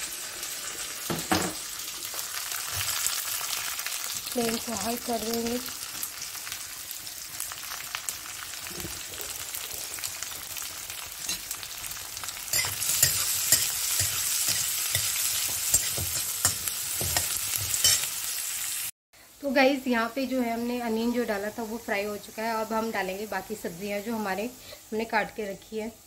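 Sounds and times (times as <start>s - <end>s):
onions sizzling in hot oil: 0.0s - 26.0s
metal spatula scraping pan: 12.5s - 18.2s.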